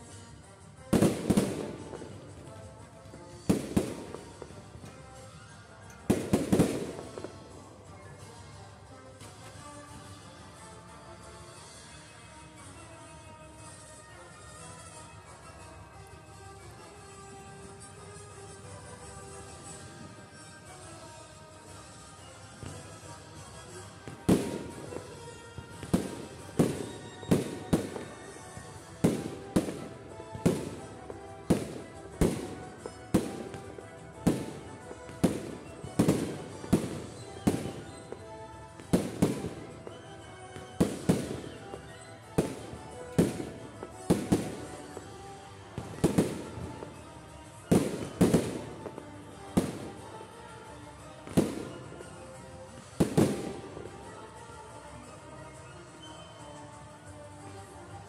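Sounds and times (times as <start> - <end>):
music playing: 0.0 - 58.0
fireworks bangs: 0.9 - 5.0, 6.0 - 7.5, 23.7 - 47.0, 47.6 - 50.6.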